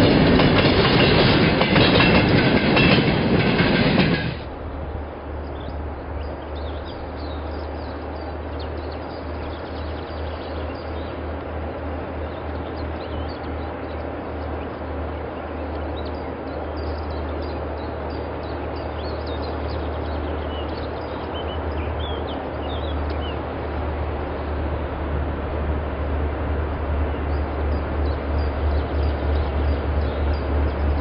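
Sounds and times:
distant diesel locomotive rumble: 0.0 - 31.0
birds chirping: 12.2 - 23.4.

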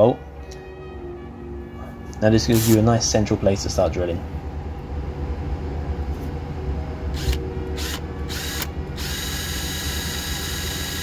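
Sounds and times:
power drill boring into metal: 7.2 - 11.0.

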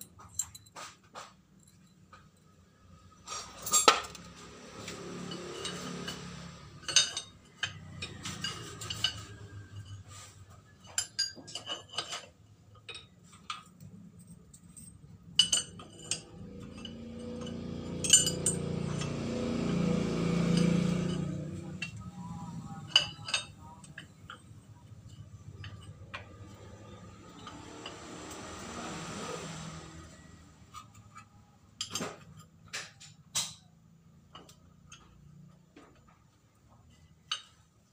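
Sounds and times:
steel parts clinking: 0.0 - 37.9.

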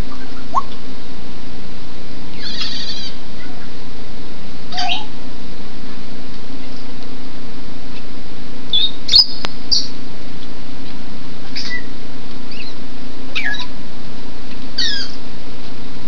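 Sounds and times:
parrots chirping and whistling: 2.4 - 3.6, 4.7 - 5.1, 8.7 - 9.9, 11.5 - 11.9, 12.5 - 12.8, 13.4 - 13.7, 14.8 - 15.2.

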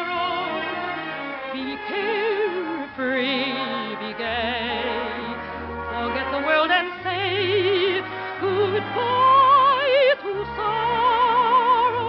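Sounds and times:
orchestra: 0.0 - 12.0
soprano singing operatically: 1.5 - 12.0.

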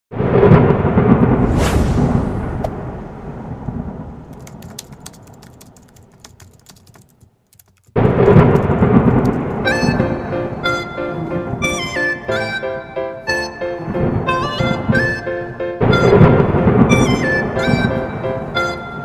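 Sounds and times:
loud low rumble: 0.2 - 4.3
whoosh: 0.2 - 4.3
faint crackles: 4.2 - 9.4.

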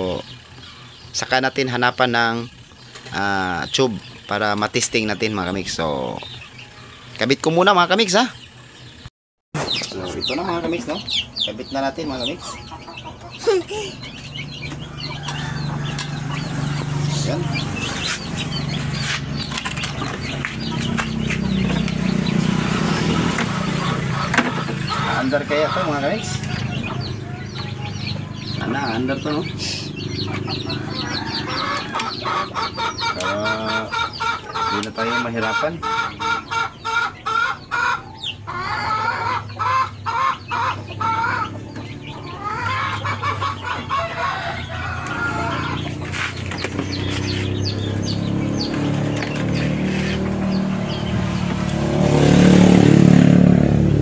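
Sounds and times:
birds chirping: 0.0 - 54.0
chickens clucking: 0.0 - 54.0
low motor hum: 12.7 - 25.1, 44.4 - 54.0.

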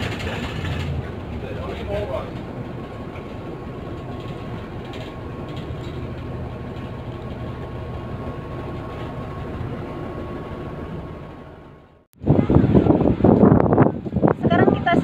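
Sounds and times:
bus engine droning: 0.0 - 15.0
road rumble: 0.0 - 15.0.

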